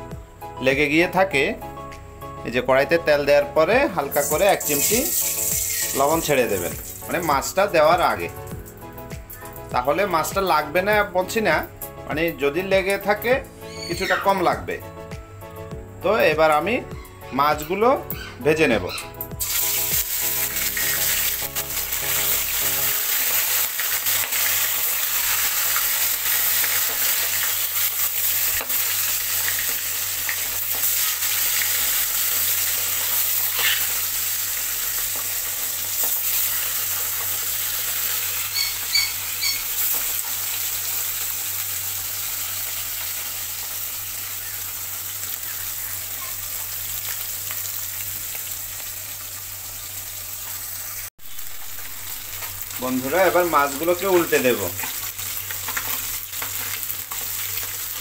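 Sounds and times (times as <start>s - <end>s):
fish sizzling in hot oil: 3.7s - 9.5s, 19.4s - 58.0s.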